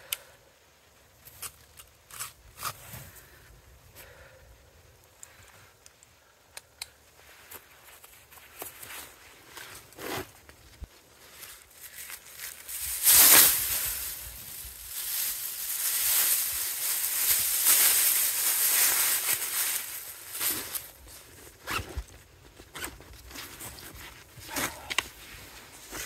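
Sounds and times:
rustling near microphone: 0:07.1 - 0:26.0.

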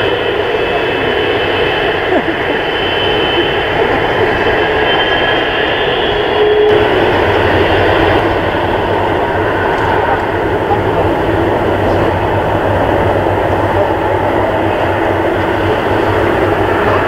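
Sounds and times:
jet engines roaring with whine: 0:00.0 - 0:17.0.

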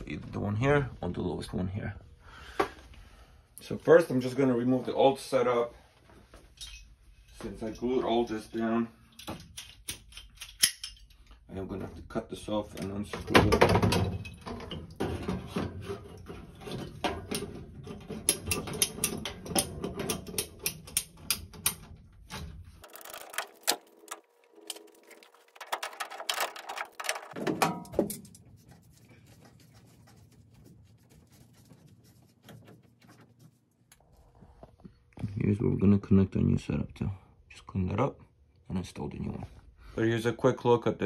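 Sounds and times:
pipe cutter ratcheting clicks: 0:09.1 - 0:11.2, 0:18.2 - 0:21.9
pipe rattling: 0:12.8 - 0:33.6.

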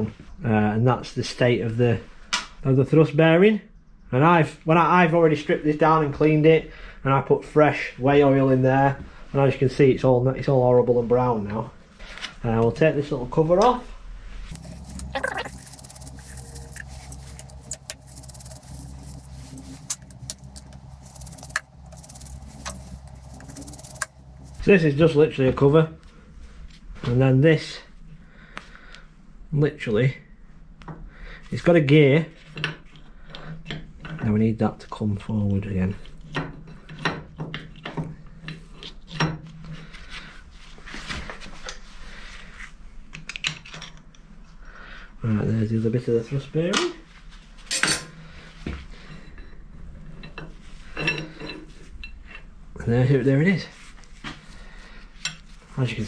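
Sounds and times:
steady low hum: 0:08.6 - 0:32.2
screwdriver metallic clicks and scrapes: 0:14.5 - 0:24.6.

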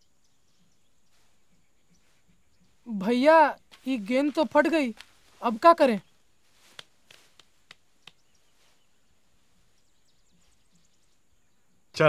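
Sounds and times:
faint high chirping: 0:00.0 - 0:12.0
soft clicks: 0:06.6 - 0:08.3.

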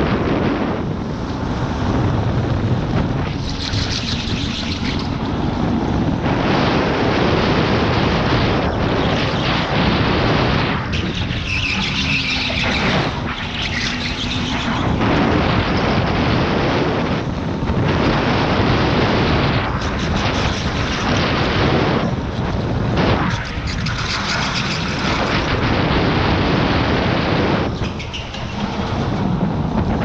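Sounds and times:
wind rushing on microphone: 0:00.0 - 0:30.0
tyre noise: 0:18.5 - 0:30.0.

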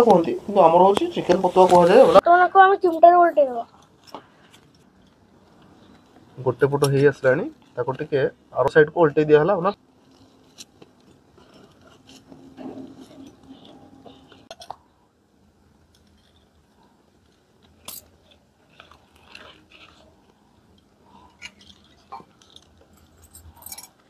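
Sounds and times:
crisp crackles: 0:15.9 - 0:23.4.

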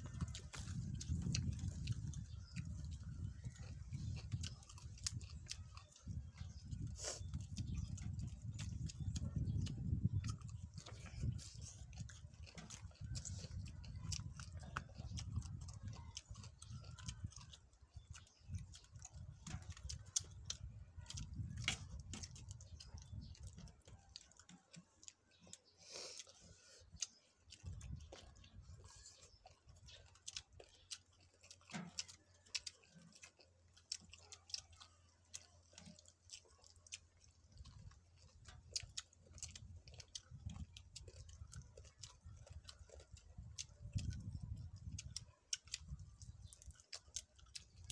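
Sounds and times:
people chewing food: 0:00.0 - 0:47.9.

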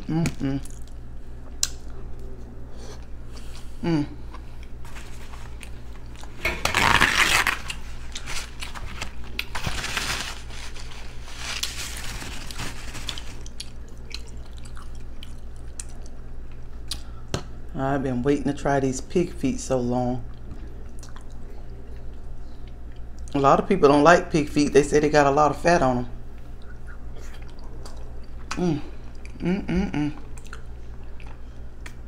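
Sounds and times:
steady low hum: 0:00.0 - 0:32.0
person chewing food: 0:10.4 - 0:17.1, 0:20.3 - 0:23.3, 0:26.4 - 0:29.4, 0:30.1 - 0:32.0.

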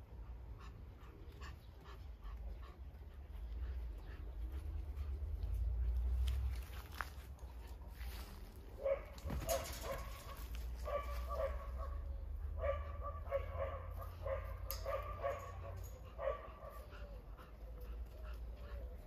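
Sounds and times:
dog barking: 0:08.8 - 0:16.9.

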